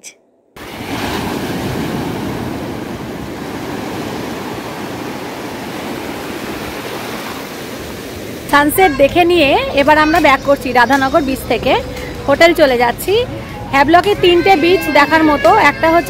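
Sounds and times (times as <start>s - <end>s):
surf waves on sandy beach: 0.6s - 8.9s.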